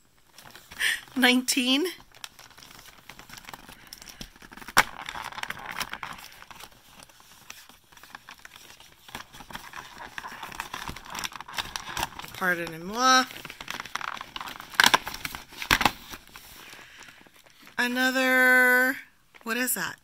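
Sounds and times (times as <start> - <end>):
cardboard rustling and scraping: 2.0 - 17.8.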